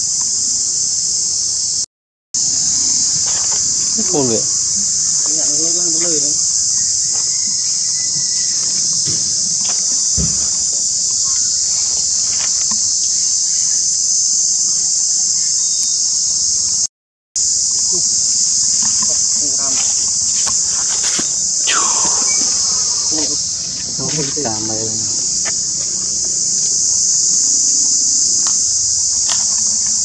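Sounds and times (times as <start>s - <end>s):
high-pitched insect chorus: 0.0s - 30.0s
short wavering call: 20.6s - 23.4s.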